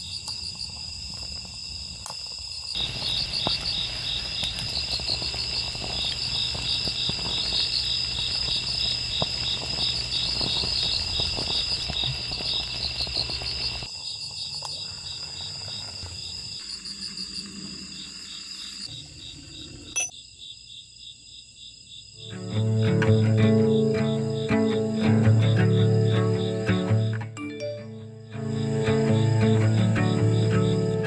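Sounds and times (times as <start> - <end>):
crickets chirping: 0.0 - 31.0
sauce bubbling in a pan: 2.3 - 15.9.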